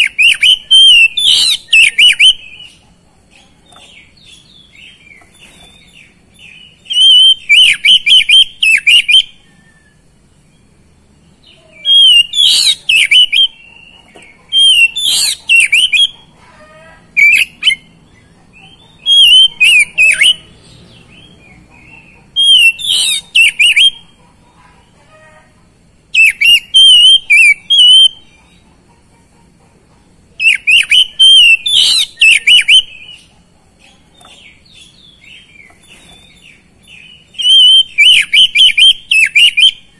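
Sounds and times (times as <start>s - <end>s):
bird singing chattering and whistling: 0.0s - 16.3s, 17.0s - 24.3s, 26.1s - 28.8s, 30.3s - 39.9s.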